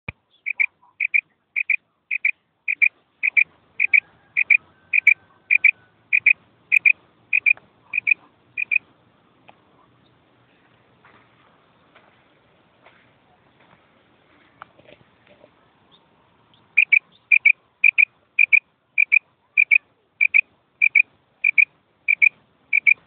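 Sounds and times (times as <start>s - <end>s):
quail two-note call: 0.5s - 8.8s.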